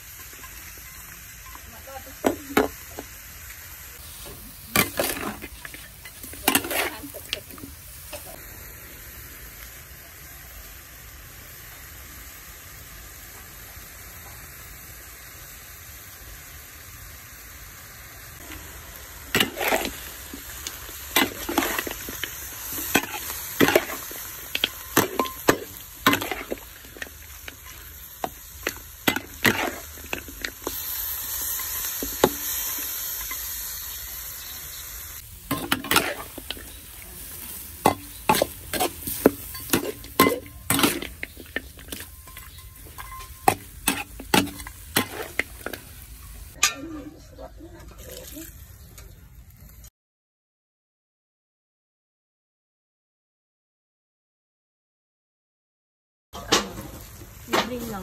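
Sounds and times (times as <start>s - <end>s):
meat sizzling in a wok: 0.0s - 47.0s, 56.4s - 58.0s
spatula scraping a pan: 4.0s - 7.6s, 19.4s - 20.5s, 21.2s - 33.6s, 35.5s - 46.5s.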